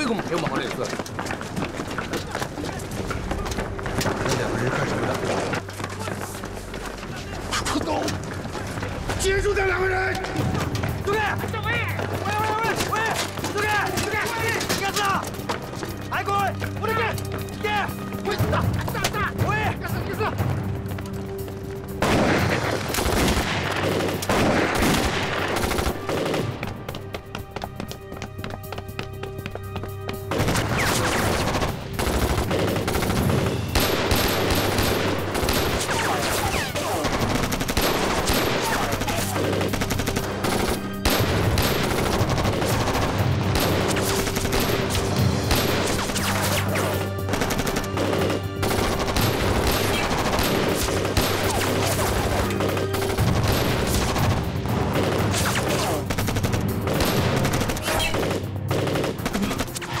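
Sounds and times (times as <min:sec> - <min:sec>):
film music with low notes: 0:00.0 - 1:00.0
rapid gunfire: 0:22.0 - 0:26.6, 0:30.3 - 0:46.6, 0:47.3 - 0:59.9.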